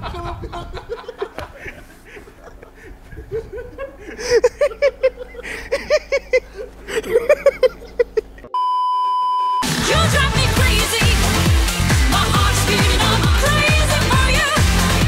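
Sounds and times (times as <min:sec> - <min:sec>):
man laughing hard: 0:00.0 - 0:08.6
high test-tone beep: 0:08.6 - 0:09.7.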